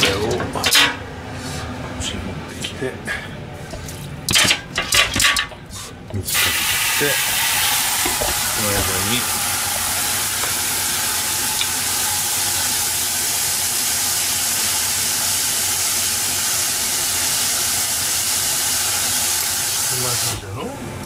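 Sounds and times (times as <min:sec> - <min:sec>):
faint low hum: 0:00.0 - 0:06.4
loud rushing hiss: 0:05.7 - 0:15.6.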